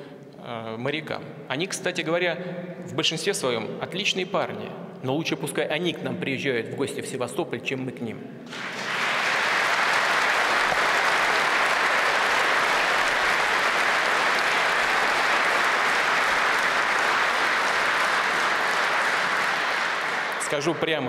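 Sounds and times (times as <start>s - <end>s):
audience applauding: 8.5s - 21.0s.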